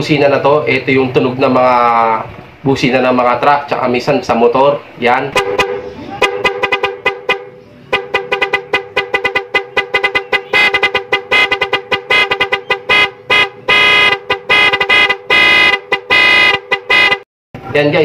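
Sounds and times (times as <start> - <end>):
vehicle horn rapid short toots: 5.3 - 17.2
longer horn blasts: 5.3 - 17.3.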